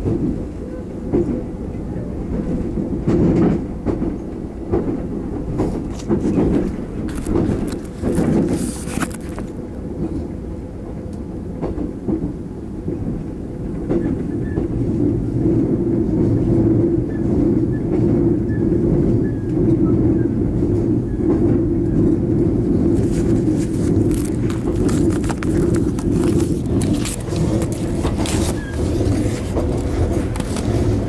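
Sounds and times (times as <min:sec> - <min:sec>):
rail clicks: 0:00.0 - 0:31.0
train wheels rumbling on rail: 0:00.0 - 0:31.0.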